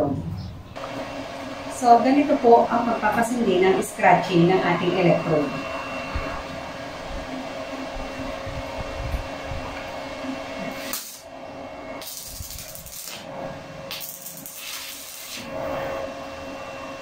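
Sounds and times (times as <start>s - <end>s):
steady hum: 0.0s - 17.0s
electrode scratching steel plate: 10.6s - 11.3s, 11.9s - 16.0s
welding arc hissing and crackling: 10.6s - 11.3s, 12.0s - 13.3s, 13.9s - 15.5s.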